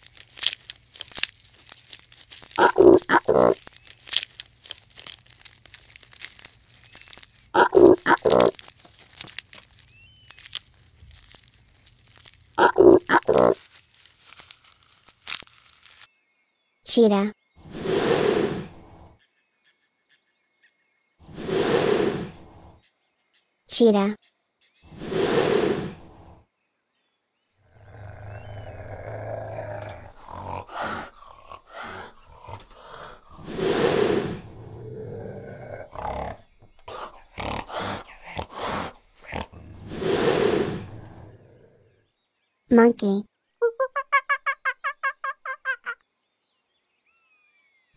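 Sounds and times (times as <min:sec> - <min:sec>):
cheetah growling: 0:02.6 - 0:03.6, 0:07.5 - 0:08.6, 0:12.6 - 0:13.6, 0:17.6 - 0:19.2, 0:21.2 - 0:22.8, 0:24.9 - 0:26.4, 0:27.7 - 0:42.0
cheetah snarl: 0:02.6 - 0:03.6, 0:07.6 - 0:08.6, 0:12.6 - 0:13.6, 0:17.6 - 0:19.2, 0:21.2 - 0:22.8, 0:24.9 - 0:26.4, 0:27.7 - 0:41.8
giraffe rough calls: 0:02.6 - 0:03.6, 0:07.5 - 0:08.6, 0:12.6 - 0:13.6, 0:17.6 - 0:19.2, 0:21.2 - 0:22.8, 0:24.9 - 0:26.4, 0:27.8 - 0:41.7.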